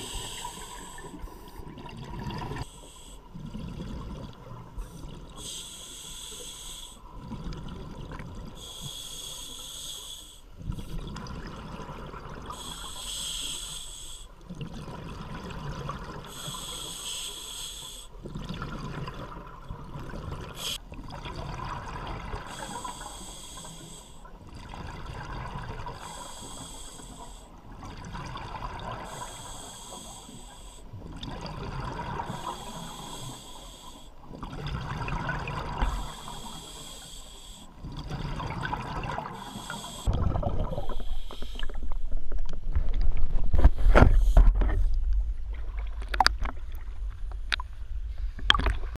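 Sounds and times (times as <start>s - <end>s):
diver inhaling through regulator: 0.0s - 1.6s, 2.6s - 3.4s, 5.4s - 7.1s, 8.6s - 10.5s, 12.5s - 14.4s, 16.3s - 18.2s, 22.4s - 24.3s, 25.9s - 27.6s, 28.9s - 30.9s, 32.2s - 34.2s, 35.5s - 42.0s
bubbling of exhaled air: 0.0s - 2.7s, 34.3s - 46.8s.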